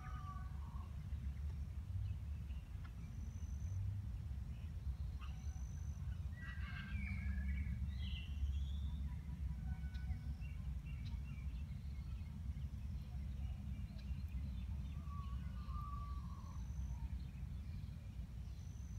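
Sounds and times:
steady low rumble: 0:06.0 - 0:18.9.

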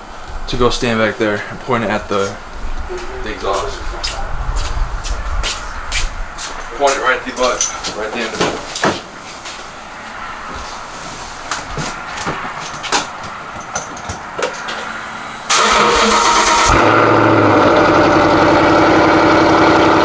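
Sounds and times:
car engine cranking and idling: 0:14.4 - 0:20.0.

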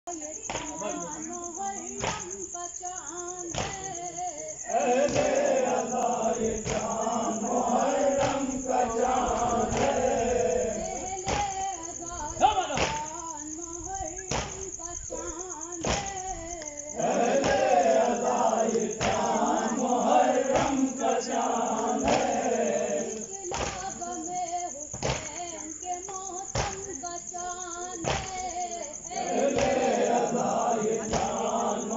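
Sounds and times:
men chanting a lament: 0:03.4 - 0:13.3, 0:14.1 - 0:24.5, 0:28.1 - 0:31.9
rhythmic thumps: 0:04.9 - 0:13.2.

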